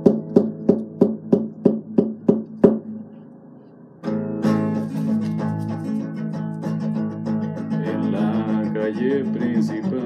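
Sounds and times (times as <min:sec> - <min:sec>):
acoustic guitar strumming: 0:04.0 - 0:10.0.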